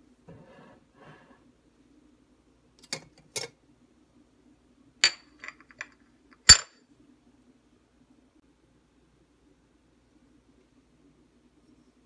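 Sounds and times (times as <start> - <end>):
ceramic lid and metal clinking: 5.0 - 6.8.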